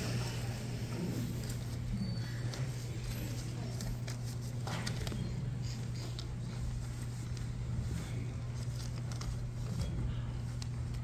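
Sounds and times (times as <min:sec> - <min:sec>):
low room hum: 0:00.0 - 0:11.0
small clicks and rustles: 0:08.6 - 0:11.0.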